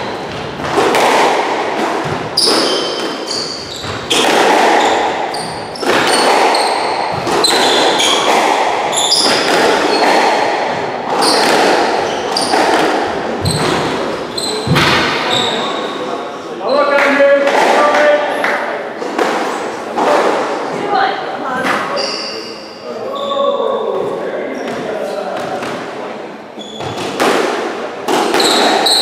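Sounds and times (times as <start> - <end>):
squash ball smacks: 0.3 - 15.3, 26.8 - 29.0
shoes squeaking on wooden floor: 2.0 - 16.0, 26.6 - 27.2, 28.4 - 29.0.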